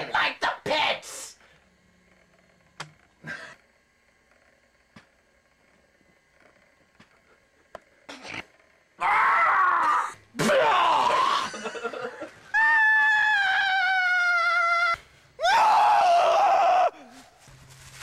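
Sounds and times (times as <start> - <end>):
person screaming: 9.0 - 11.7, 12.5 - 17.2.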